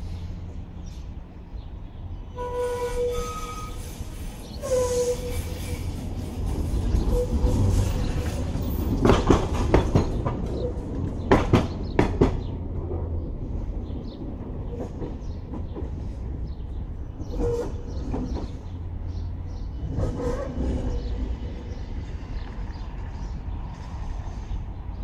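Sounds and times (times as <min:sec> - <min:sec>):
tram rumble: 0:00.0 - 0:25.0
tram wheel squeals: 0:02.1 - 0:12.4, 0:16.9 - 0:23.1
wheels clacking over rail joints: 0:03.0 - 0:24.1.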